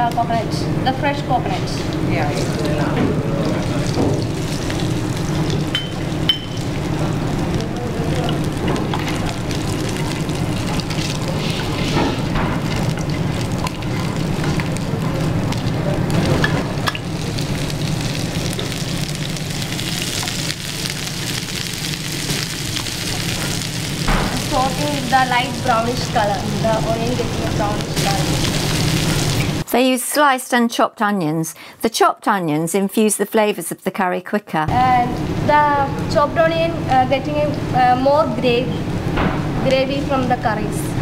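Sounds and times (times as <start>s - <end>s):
onions sizzling in oil: 1.6s - 29.6s.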